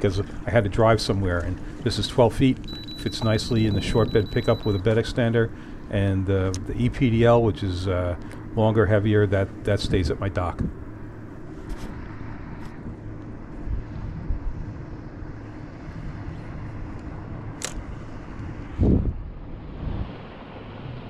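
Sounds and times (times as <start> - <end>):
sharp click: 17.6 - 17.8.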